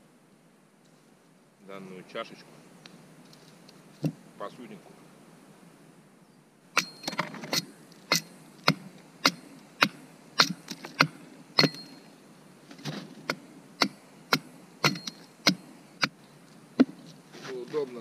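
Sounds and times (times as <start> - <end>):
axe chopping wood: 6.8 - 11.9, 12.8 - 16.2.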